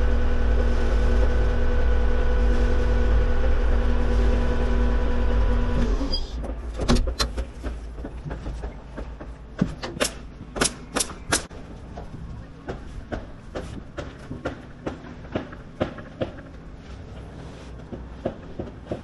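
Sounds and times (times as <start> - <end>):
machine engine running: 0.0 - 6.8.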